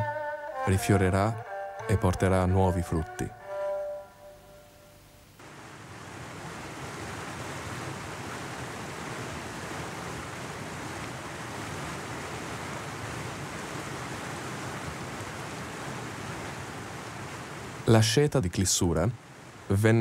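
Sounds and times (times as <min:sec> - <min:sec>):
mountain stream rushing: 0:05.4 - 0:20.0.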